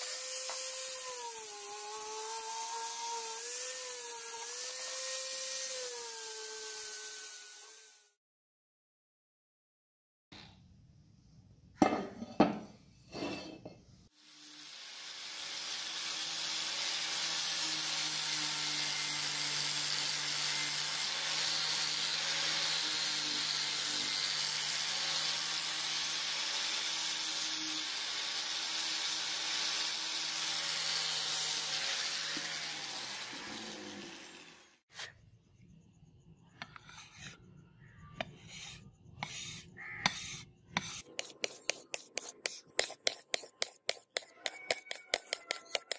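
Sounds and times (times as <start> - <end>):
grinder disc grinding steel: 14.6 - 35.1, 38.2 - 45.9
blade scraping on whetstone: 36.6 - 37.4, 38.2 - 45.9.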